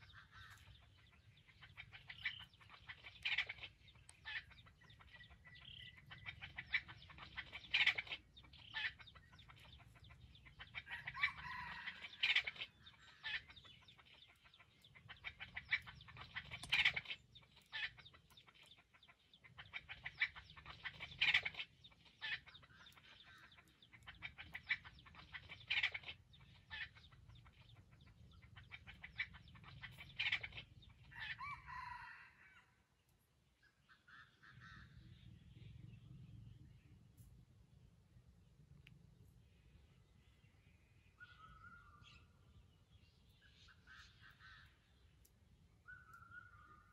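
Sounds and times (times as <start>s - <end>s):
wild chicken clucking: 0.0s - 37.3s, 41.2s - 46.9s
rooster crowing: 11.1s - 12.2s, 31.3s - 32.7s.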